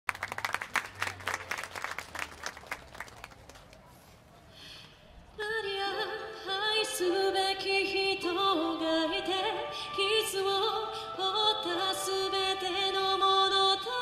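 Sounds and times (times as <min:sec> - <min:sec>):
crowd applauding: 0:00.1 - 0:03.9.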